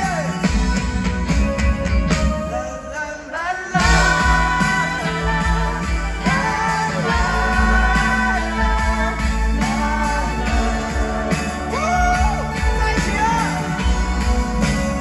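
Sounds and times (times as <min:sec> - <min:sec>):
live rock band with singing: 0:00.0 - 0:15.0.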